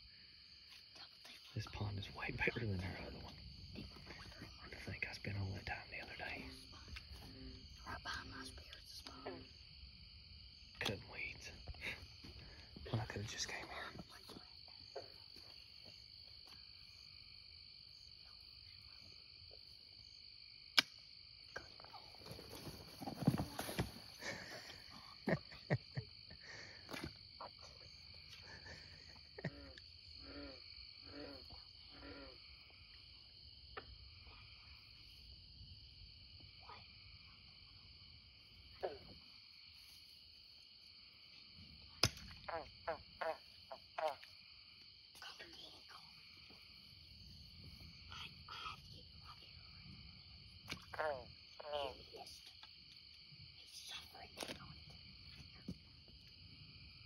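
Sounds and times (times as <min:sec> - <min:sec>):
night insects chorus: 0:00.0 - 0:57.0
people moving through grass and mud: 0:21.9 - 0:25.3.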